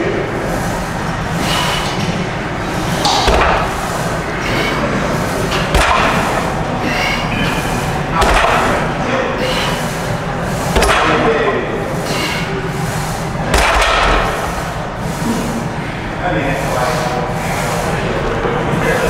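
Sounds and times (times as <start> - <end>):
barbell thudding on rack pins: 5.7 - 6.4.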